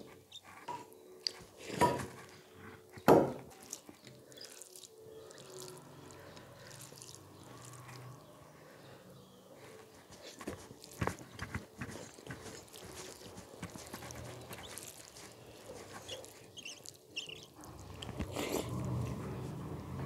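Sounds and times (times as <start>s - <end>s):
fingers squishing wet rice: 0.0s - 8.6s, 9.6s - 19.9s
wet smacks of eating: 3.6s - 8.1s, 10.1s - 19.0s.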